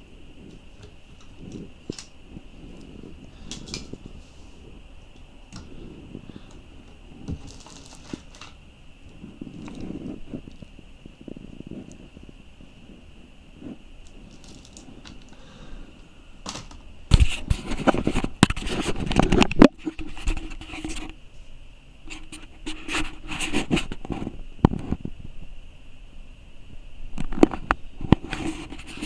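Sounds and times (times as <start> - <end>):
faint high-pitched hum: 0.0 - 29.0
cloth rubbing on microphone: 9.2 - 10.6, 22.1 - 24.3, 28.2 - 29.0.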